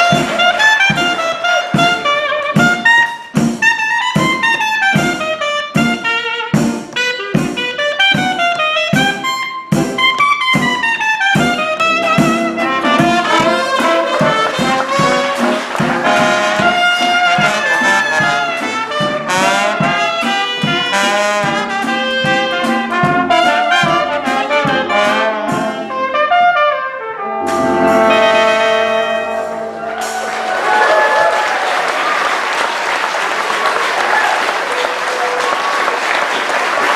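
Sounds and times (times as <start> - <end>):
applause: 0.0 - 1.8, 12.9 - 18.6, 29.9 - 36.9
jazz band playing: 0.0 - 36.9.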